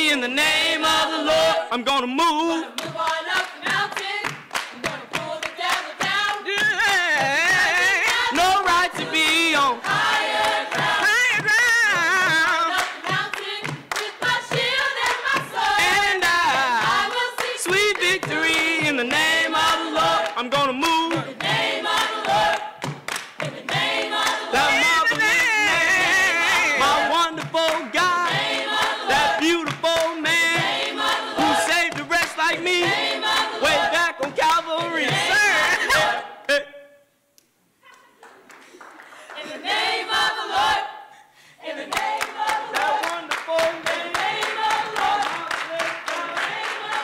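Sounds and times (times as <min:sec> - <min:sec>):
choir singing a cappella: 0:00.0 - 0:36.4, 0:39.3 - 0:47.0
hand claps: 0:02.8 - 0:33.0, 0:41.9 - 0:47.0.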